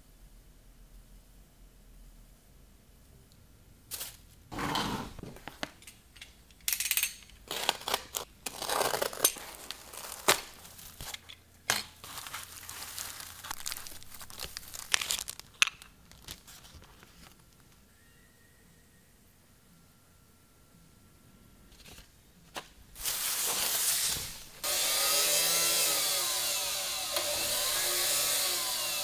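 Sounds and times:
shredded paper crinkling: 0:07.5 - 0:11.3, 0:11.9 - 0:17.4, 0:23.0 - 0:25.4.

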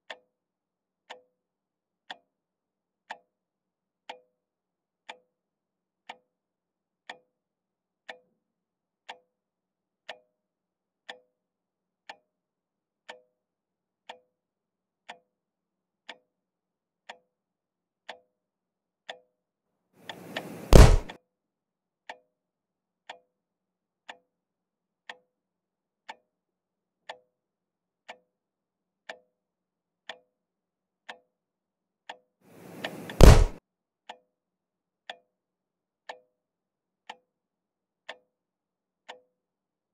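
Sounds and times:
clock ticking: 0:20.1 - 0:21.1.

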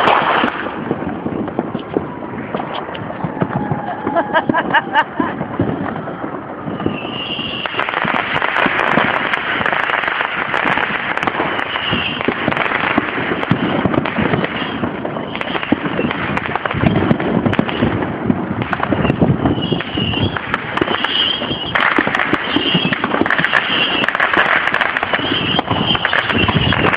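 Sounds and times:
fireworks crackling and banging: 0:00.0 - 0:26.9.

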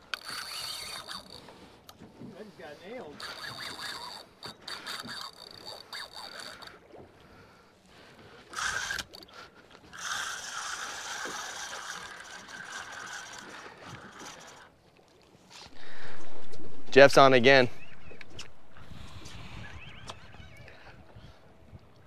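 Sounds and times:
fishing reel whirring and ratcheting: 0:00.0 - 0:01.7, 0:03.0 - 0:06.8, 0:08.5 - 0:14.7.

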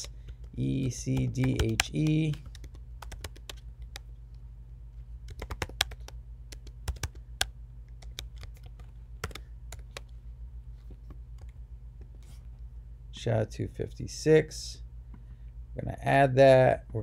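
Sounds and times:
typing on a computer keyboard: 0:00.0 - 0:04.1, 0:05.3 - 0:10.1.

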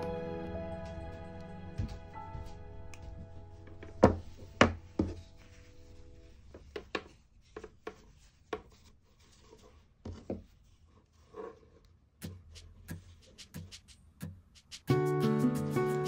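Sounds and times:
fabric rubbing: 0:04.2 - 0:14.9.

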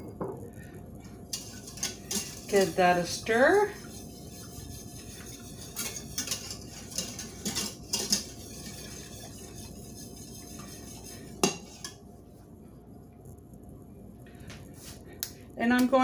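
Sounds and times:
whisk scraping a metal saucepan: 0:01.3 - 0:12.0.

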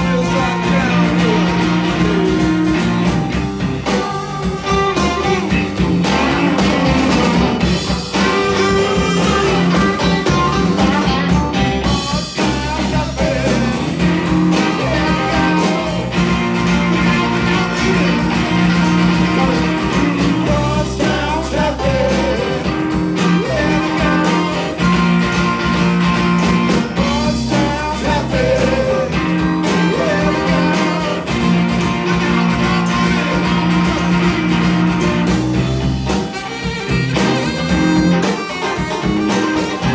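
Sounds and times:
person singing: 0:00.0 - 0:02.9, 0:08.1 - 0:11.1, 0:11.8 - 0:25.1, 0:27.0 - 0:33.7
blues-rock band playing: 0:00.0 - 0:39.9.

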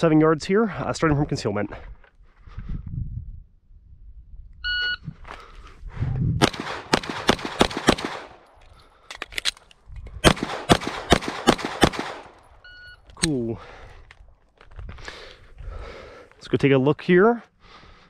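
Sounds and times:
shot timer beep: 0:04.6 - 0:05.0
pistol shots: 0:06.4 - 0:08.6, 0:10.2 - 0:12.6.

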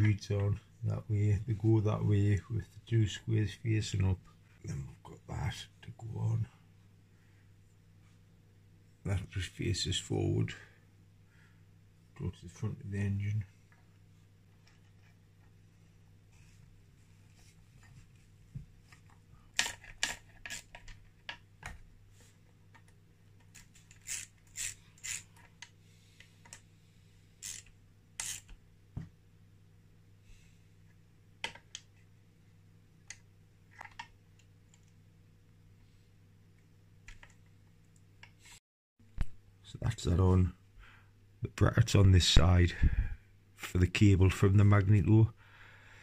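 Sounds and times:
metal parts clicking and scraping: 0:19.6 - 0:21.0, 0:23.4 - 0:25.6, 0:27.4 - 0:28.5.

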